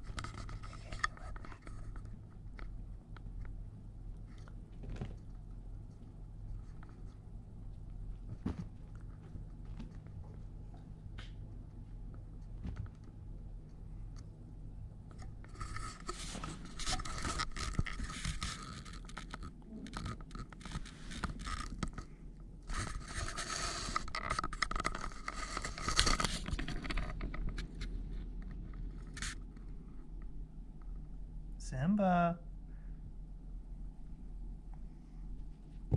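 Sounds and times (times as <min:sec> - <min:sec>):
toy rustling over carpet: 0:15.5 - 0:19.4, 0:20.5 - 0:22.0.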